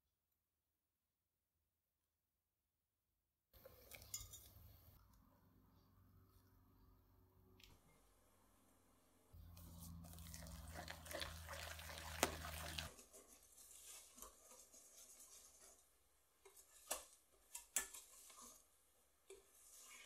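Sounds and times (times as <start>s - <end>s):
whisk wires clinking on glass: 4.0s - 4.5s
whisk squelching batter: 9.5s - 20.0s.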